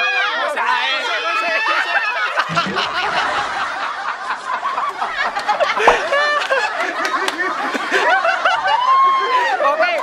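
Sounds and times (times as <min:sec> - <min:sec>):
young men laughing: 0:01.7 - 0:09.6.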